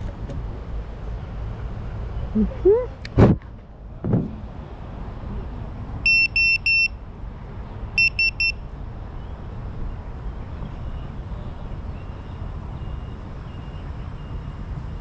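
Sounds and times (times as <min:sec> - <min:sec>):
electronic beeper beeping: 0:08.0 - 0:08.6.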